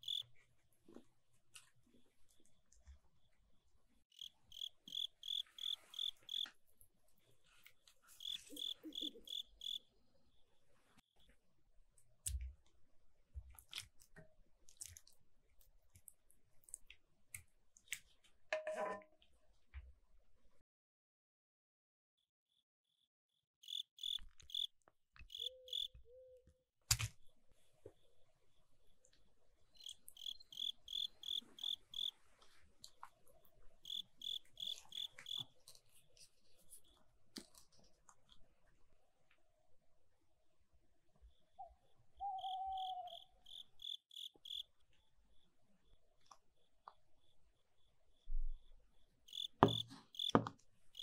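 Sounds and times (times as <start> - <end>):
insect chirping: 0.0 - 0.3, 4.1 - 6.6, 8.1 - 9.9, 23.6 - 26.3, 29.7 - 32.2, 33.8 - 35.6, 41.3 - 51.0
soft wet squishes of sauce: 0.4 - 4.0, 11.2 - 18.4, 32.2 - 33.8, 34.8 - 39.4.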